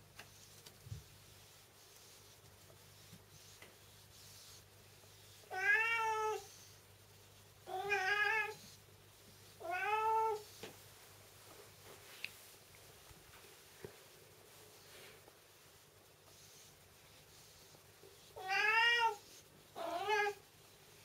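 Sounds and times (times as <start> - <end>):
cat meowing: 5.5 - 6.5, 7.7 - 8.6, 9.6 - 10.4, 18.4 - 19.2.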